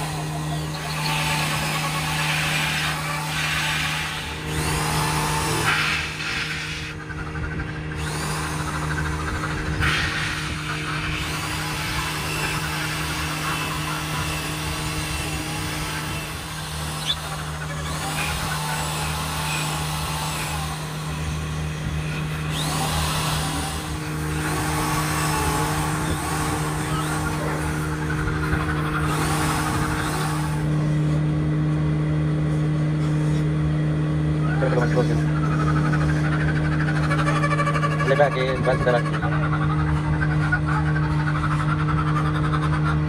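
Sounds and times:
hands rasping on spinning wood: 0.0 - 30.7
wood lathe running: 0.0 - 31.0, 34.5 - 43.0.

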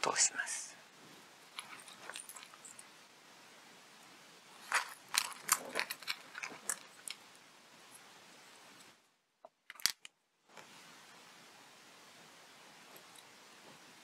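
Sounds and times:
plastic pieces clicking and crackling: 4.6 - 7.2, 9.7 - 10.1.

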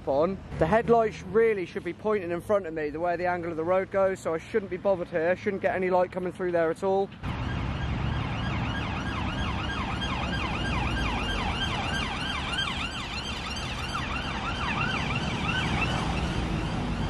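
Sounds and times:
road traffic rumble: 0.0 - 17.0
siren on fast yelp: 7.3 - 16.4.

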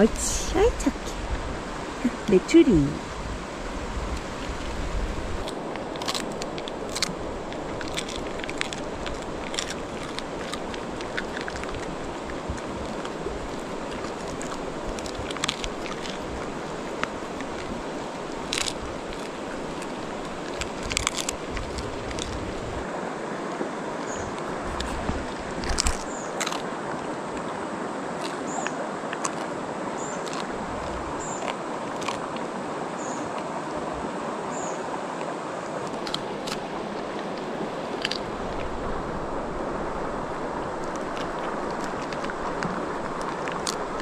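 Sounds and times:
mountain stream rushing: 0.0 - 44.0
short clicks and crunches: 18.5 - 22.4, 25.6 - 26.7.

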